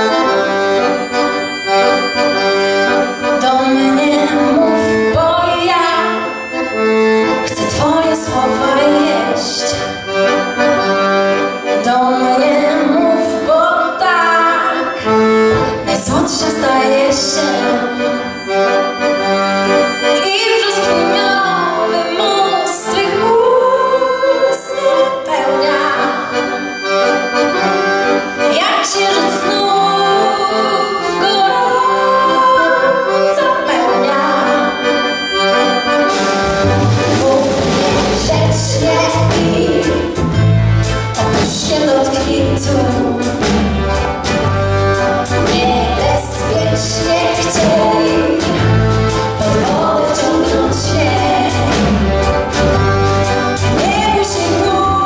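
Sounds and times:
bass: 0.0 - 29.8, 30.4 - 55.0
piano accordion: 0.0 - 55.0
steady drum beat: 36.1 - 41.8.

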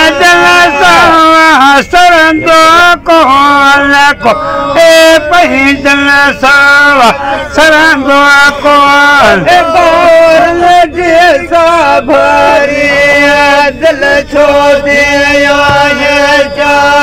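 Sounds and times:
men chanting in long notes: 0.0 - 17.0.

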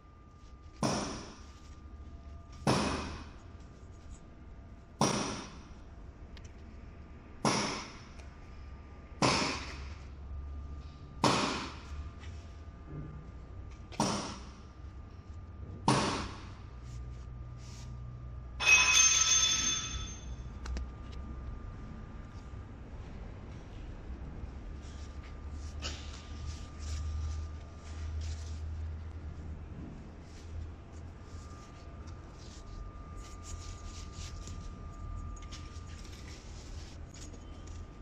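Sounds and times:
sharp metallic clanks: 18.6 - 20.4
ringing metallic clatter: 18.6 - 20.5.

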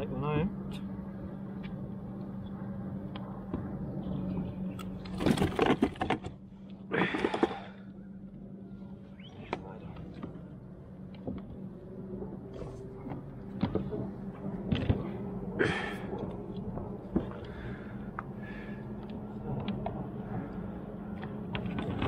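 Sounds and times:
steady low hum: 0.0 - 22.0
fishing gear clicking and knocking: 4.8 - 6.4, 7.0 - 7.7.

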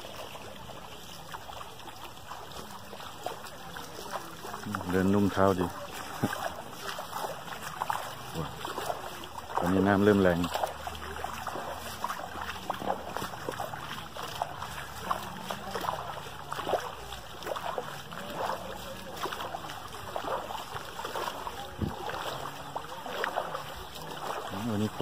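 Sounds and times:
footsteps splashing in water: 0.0 - 25.0
stream rushing: 0.0 - 25.0.

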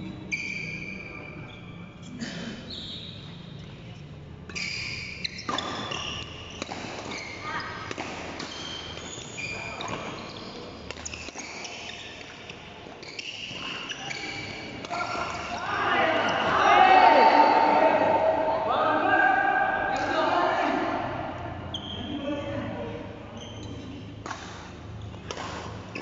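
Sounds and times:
shoes squeaking on court: 0.0 - 1.9, 2.7 - 18.3, 21.6 - 22.4, 23.3 - 26.0
racket hitting shuttlecock: 4.5 - 9.2, 10.8 - 12.0, 24.2 - 26.0.

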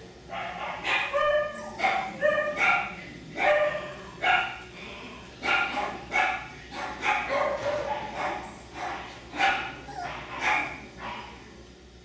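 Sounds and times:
puppy yipping: 0.6 - 2.8, 9.4 - 10.8.

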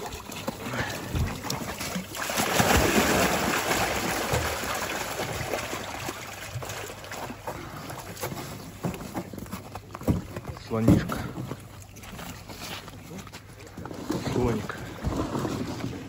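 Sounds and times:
water and fish splashing gush: 0.0 - 9.8.

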